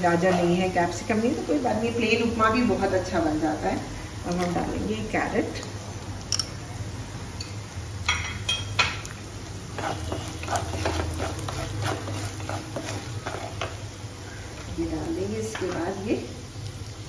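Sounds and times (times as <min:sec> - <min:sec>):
low steady hum: 0:00.0 - 0:17.0
wooden spatula scraping a pan: 0:09.7 - 0:16.0.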